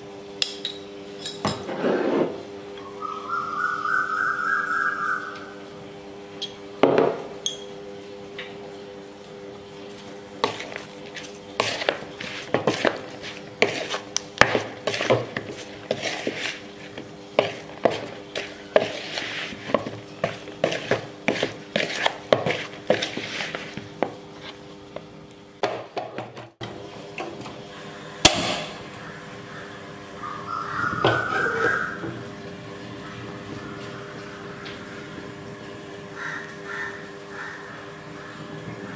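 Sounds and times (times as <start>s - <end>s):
spoon scraping plastic bowl: 10.4s - 24.6s
steady low hum: 26.5s - 38.9s.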